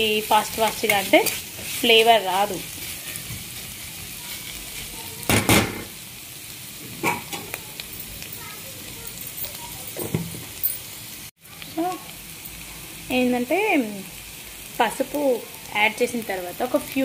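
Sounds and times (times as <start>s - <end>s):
spatula scraping pan: 0.0s - 5.3s
onions sizzling in oil: 0.0s - 17.0s.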